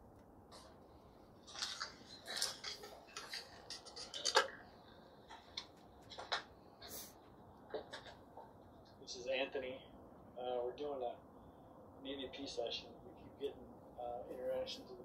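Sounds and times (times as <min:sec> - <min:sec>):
recorder being handled: 0:01.4 - 0:06.5.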